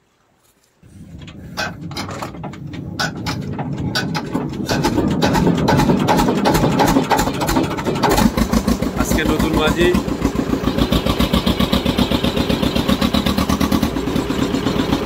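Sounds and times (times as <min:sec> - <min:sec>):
boat engine rumble: 0:00.1 - 0:15.0
irregular knocks: 0:00.9 - 0:09.0.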